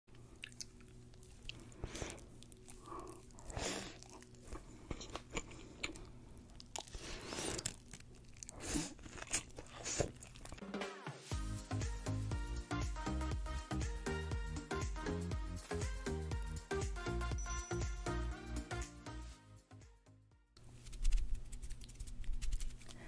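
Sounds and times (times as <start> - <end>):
wet chewing: 0.1 - 10.6
crunching fried food: 0.3 - 10.6.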